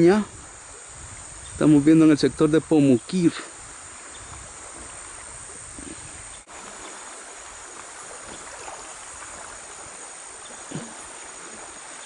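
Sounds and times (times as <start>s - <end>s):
river water rushing: 2.9s - 12.0s.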